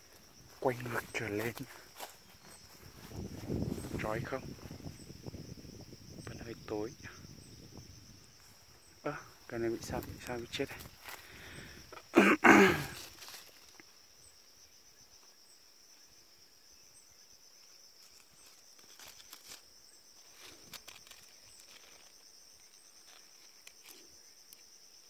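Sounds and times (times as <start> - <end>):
faint footsteps: 0.0 - 4.9
insects chirring: 0.0 - 25.0.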